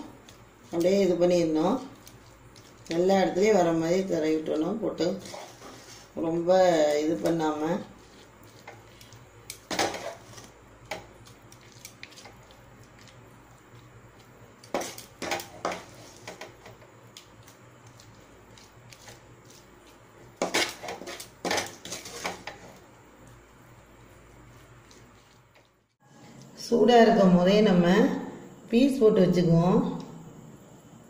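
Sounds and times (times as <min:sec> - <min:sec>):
wooden spatula scraping steel plate: 0:05.0 - 0:06.2, 0:09.7 - 0:10.5, 0:20.4 - 0:22.8.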